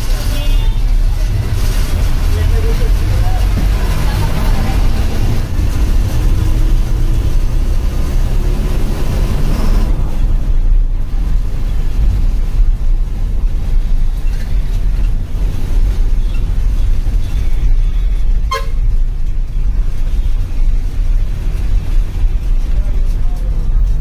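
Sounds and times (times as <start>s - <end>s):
bus engine rumbling: 0.0s - 24.0s
short horn toot: 18.4s - 18.9s.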